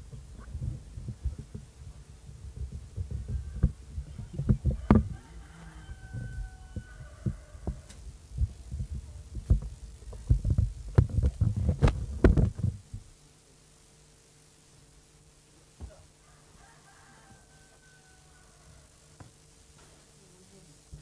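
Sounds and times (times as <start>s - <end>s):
microphone handling thumps: 0.0s - 5.2s, 5.9s - 13.2s.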